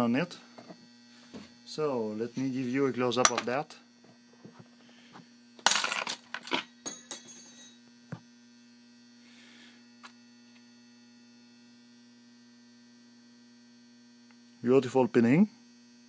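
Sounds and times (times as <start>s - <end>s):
electrical hum: 0.0s - 16.0s
small metal parts clinking: 5.6s - 7.8s.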